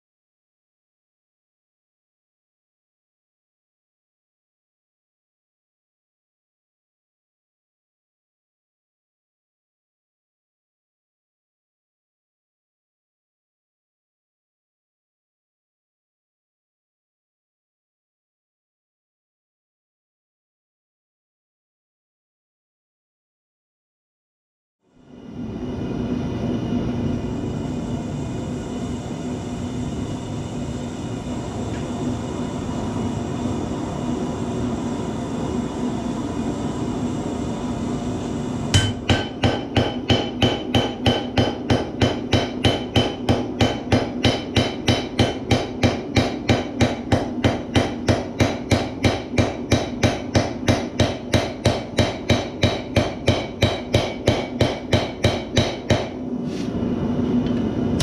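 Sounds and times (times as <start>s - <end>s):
hammer striking metal on anvil: 38.7s - 56.2s.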